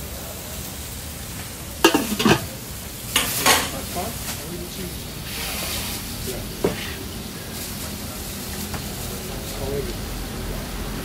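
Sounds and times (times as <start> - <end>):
food sizzling on a griddle: 0.0 - 11.0
utensil scraping metal: 1.8 - 2.6.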